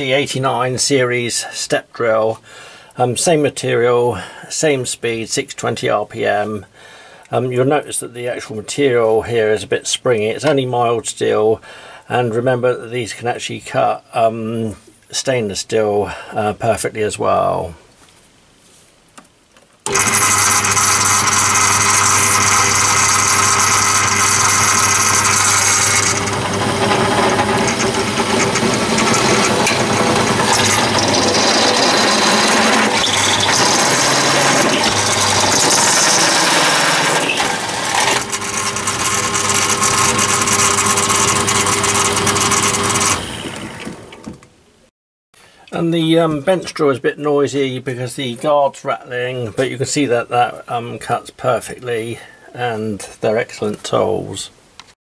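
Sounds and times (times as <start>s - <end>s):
bench drill motor hum: 19.8s - 44.5s
drill guard rattling: 19.8s - 44.5s
drill scraping through steel sheet: 19.9s - 44.3s.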